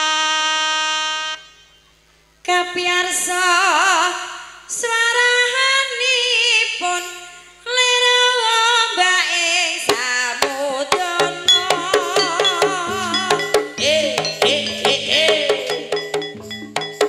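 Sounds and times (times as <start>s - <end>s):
sharp drum strikes: 9.9s - 17.0s
high wavering melody: 11.0s - 17.0s
low gong tones: 11.2s - 16.9s.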